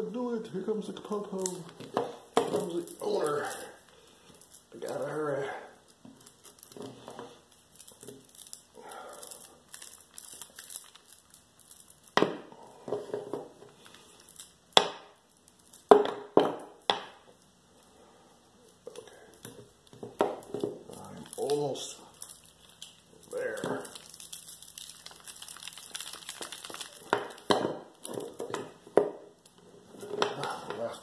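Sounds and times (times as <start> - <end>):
cable rustling: 1.0 - 14.6, 18.6 - 28.8.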